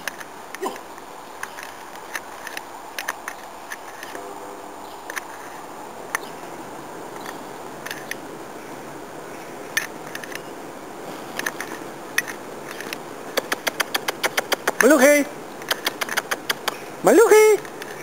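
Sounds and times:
sharp clicks and snaps: 0.0s - 4.2s, 11.4s - 14.9s, 15.6s - 16.8s
steady background hiss: 0.0s - 18.0s.

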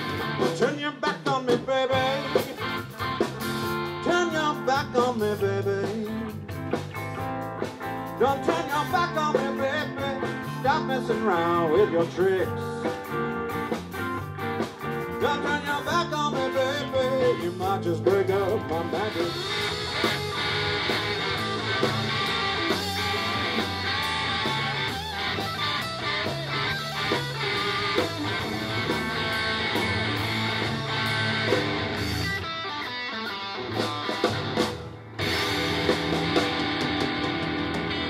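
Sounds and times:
drum kit: 0.0s - 38.0s
electric guitars: 0.0s - 38.0s.

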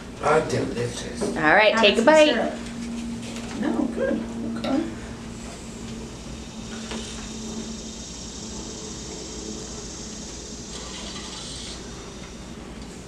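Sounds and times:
low hum: 1.7s - 13.0s
steady hiss: 5.2s - 13.0s.

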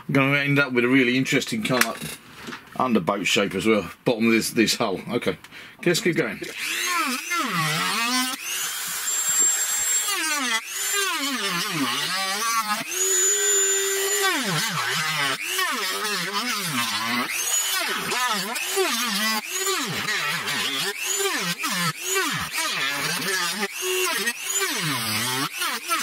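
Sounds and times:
power tool cutting plastic: 6.4s - 26.0s.

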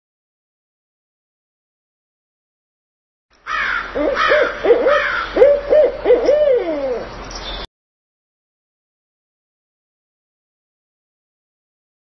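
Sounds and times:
owl hooting: 3.5s - 7.1s.

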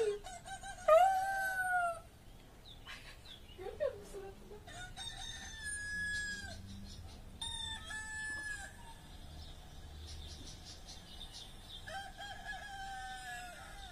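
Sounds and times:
rooster crowing: 4.7s - 6.6s, 7.4s - 9.3s, 11.8s - 13.9s.

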